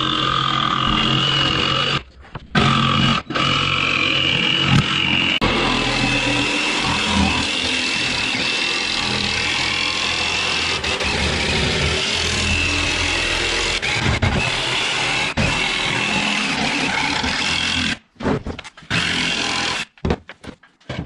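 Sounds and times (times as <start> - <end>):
power tool running: 2.6 - 18.0.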